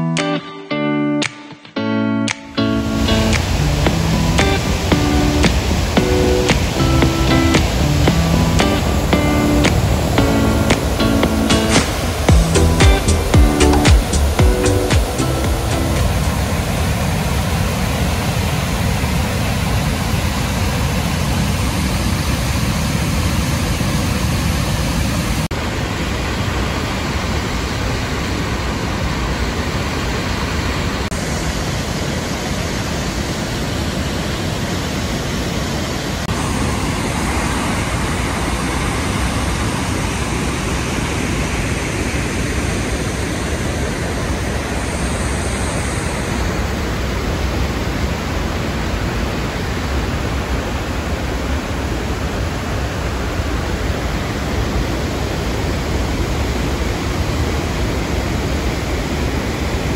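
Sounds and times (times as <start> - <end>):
waterfall and rapids rushing: 0.0 - 59.9.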